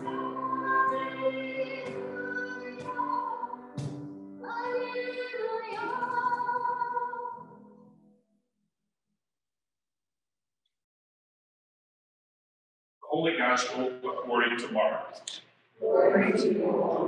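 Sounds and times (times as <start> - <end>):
congregation singing a hymn: 0.0 - 3.6, 15.8 - 17.0.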